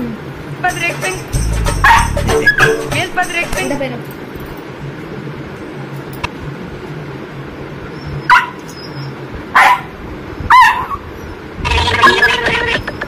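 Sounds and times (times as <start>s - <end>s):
puppy barking high-pitched: 1.8s - 2.8s, 8.3s - 8.6s, 9.5s - 11.1s.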